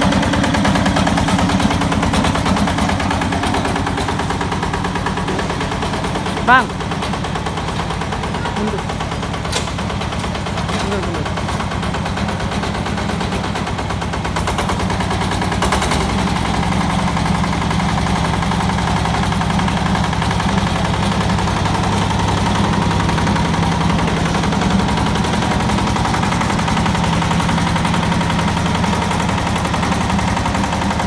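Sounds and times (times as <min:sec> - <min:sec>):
diesel engine chugging: 0:00.0 - 0:31.0.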